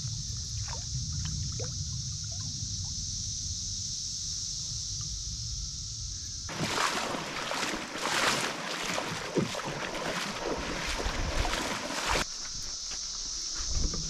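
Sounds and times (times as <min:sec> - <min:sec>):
steady high hiss: 0:01.8 - 0:06.5
wind rumbling on microphone: 0:05.1 - 0:12.7
rushing water with splashes: 0:06.5 - 0:12.3.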